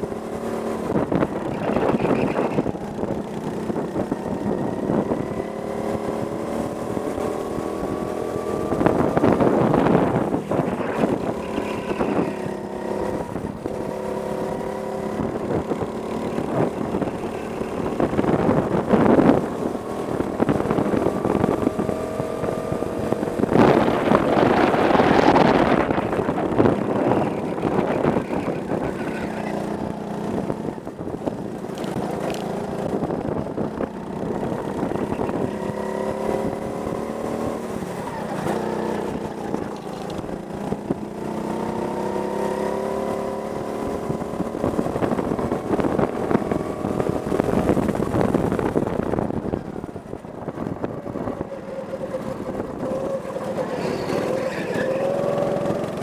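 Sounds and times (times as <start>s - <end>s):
go-kart engine revving: 0.0s - 56.0s
wind noise on microphone: 0.0s - 56.0s.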